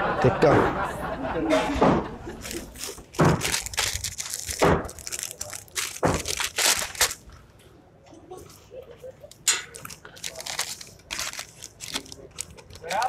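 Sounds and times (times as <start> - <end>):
sharp knocks and crunching thuds: 1.8 - 7.2.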